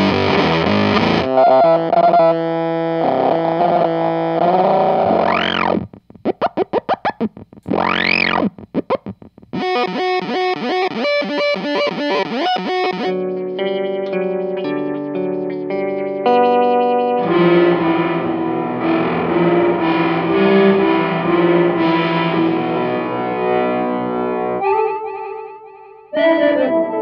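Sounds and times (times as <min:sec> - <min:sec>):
fuzzed electric guitar: 0:00.0 - 0:27.0
squealing oscillation: 0:03.7 - 0:13.2.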